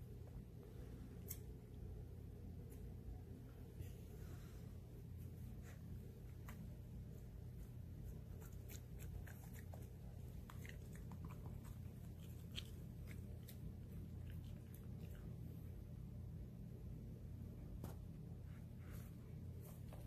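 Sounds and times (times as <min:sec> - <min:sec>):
low steady hum: 0:00.0 - 0:20.0
dog chewing grass: 0:08.2 - 0:15.3.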